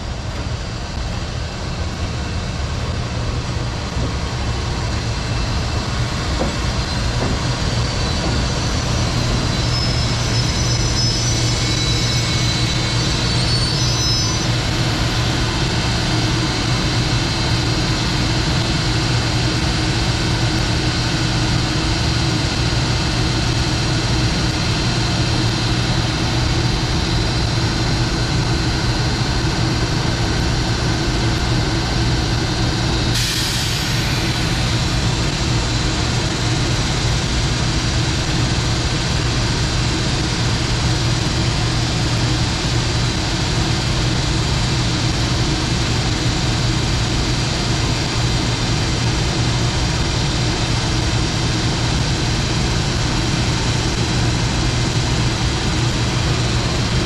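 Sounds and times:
electric locomotive humming: 0:00.0 - 0:57.0
faint high whistles: 0:08.8 - 0:14.5.

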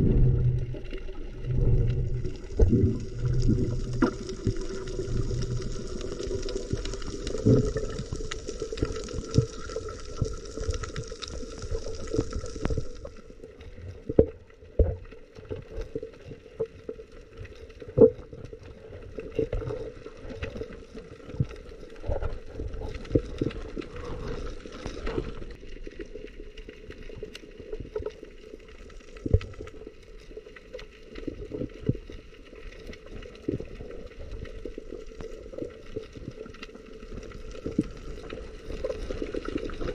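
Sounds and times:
faint steady hum: 0:00.0 - 0:14.9
water sloshing and gurgling: 0:00.0 - 0:39.9.

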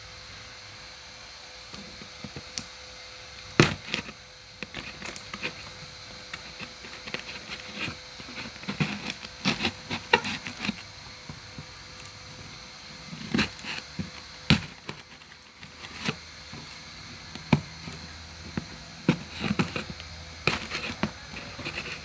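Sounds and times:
tool scratching packing tape: 0:03.6 - 0:11.6, 0:13.0 - 0:22.0.

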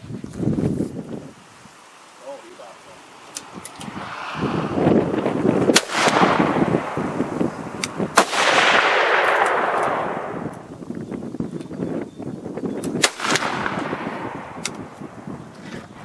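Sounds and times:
rifle shots with rolling echo: 0:05.7 - 0:10.6, 0:13.0 - 0:14.8.

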